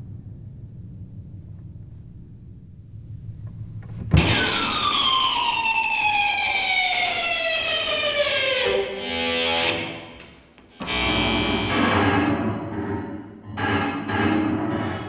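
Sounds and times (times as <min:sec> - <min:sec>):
low steady hum: 0:00.0 - 0:04.6
electric guitar sliding down in pitch: 0:04.2 - 0:12.6.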